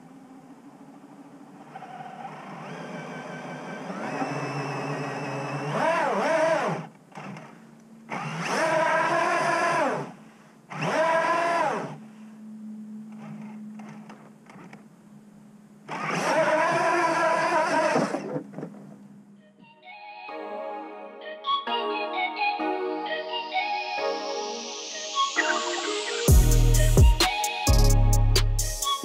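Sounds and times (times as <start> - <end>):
electric motor whine: 0.0 - 19.4.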